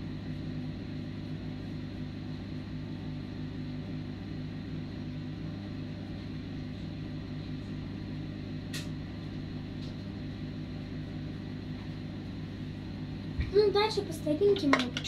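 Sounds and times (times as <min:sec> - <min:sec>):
low mechanical hum: 0:00.0 - 0:15.0
sharp click: 0:08.7 - 0:09.0.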